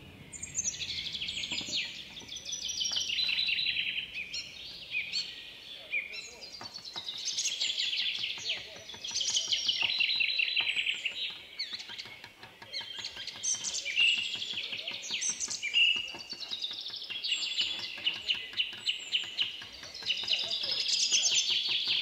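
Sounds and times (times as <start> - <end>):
hammer tapping chisel on metal: 8.1 - 22.0.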